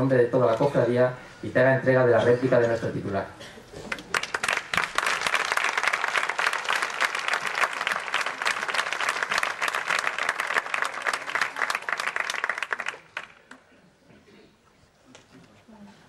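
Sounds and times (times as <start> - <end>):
audience applauding: 3.8 - 13.6.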